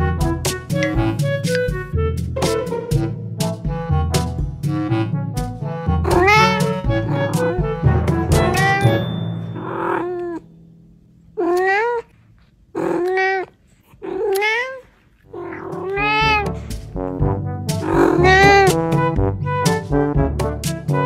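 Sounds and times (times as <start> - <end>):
cat meowing: 6.1 - 7.6, 9.6 - 10.5, 11.4 - 12.1, 12.8 - 16.6, 17.8 - 18.8.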